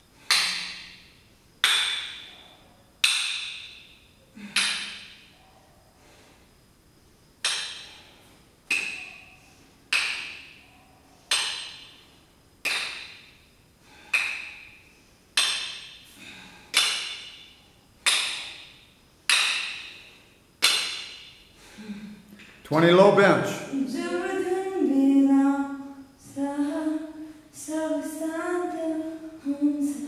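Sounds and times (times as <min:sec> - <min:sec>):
metal dumbbells clinking: 0:00.3 - 0:05.4, 0:07.4 - 0:10.7, 0:11.3 - 0:13.4, 0:14.0 - 0:14.8, 0:15.4 - 0:21.5.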